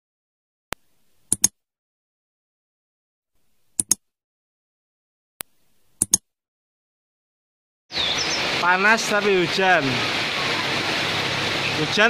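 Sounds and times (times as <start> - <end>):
mouse double clicks: 1.2 - 1.6, 3.7 - 4.0, 5.4 - 6.3.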